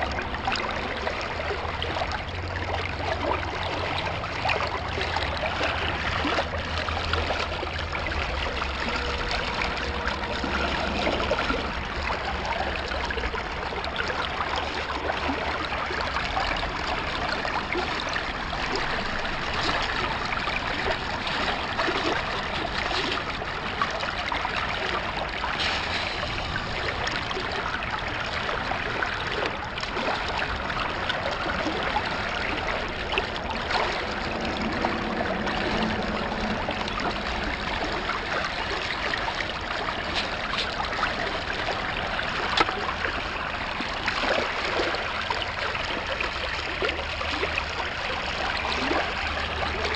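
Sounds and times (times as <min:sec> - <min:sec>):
creek water trickling: 0:00.0 - 0:49.9.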